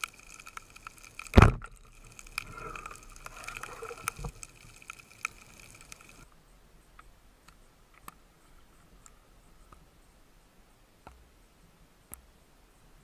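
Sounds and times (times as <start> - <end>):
underwater clicks and crackle: 0.0 - 6.3.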